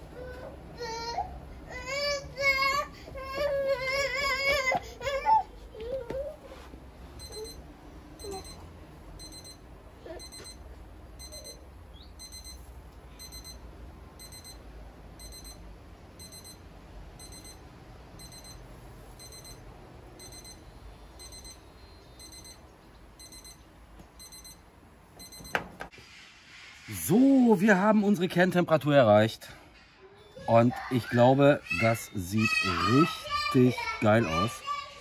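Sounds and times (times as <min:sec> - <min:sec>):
thermometer alarm short high beeps: 0:07.2 - 0:07.6, 0:08.2 - 0:08.6, 0:09.2 - 0:09.6, 0:10.2 - 0:10.6, 0:11.2 - 0:11.6, 0:12.2 - 0:12.6, 0:13.2 - 0:13.6, 0:14.2 - 0:14.6, 0:15.2 - 0:15.6, 0:16.2 - 0:16.6, 0:17.2 - 0:17.6, 0:18.2 - 0:18.6, 0:19.2 - 0:19.6, 0:20.2 - 0:21.6, 0:22.2 - 0:22.6, 0:23.2 - 0:23.6, 0:24.2 - 0:24.6, 0:25.2 - 0:25.6.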